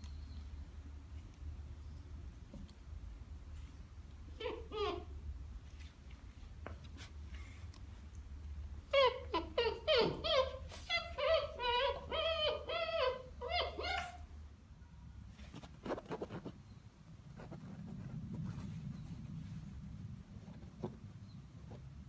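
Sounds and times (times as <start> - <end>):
puppy whining and yipping: 4.3 - 5.2, 8.9 - 14.4.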